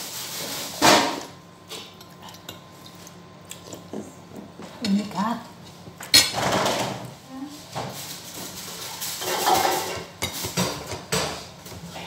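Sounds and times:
dishes clattering: 6.0 - 7.1, 9.2 - 11.5.

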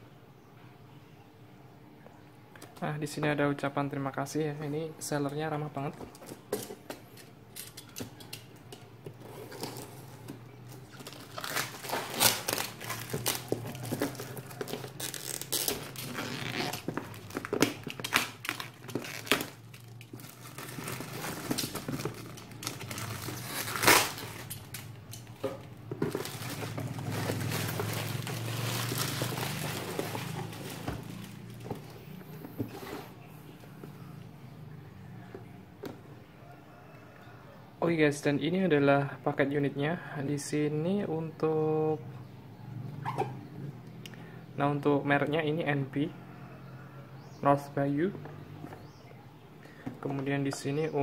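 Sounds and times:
plastic film crinkling and tearing: 9.3 - 32.0.

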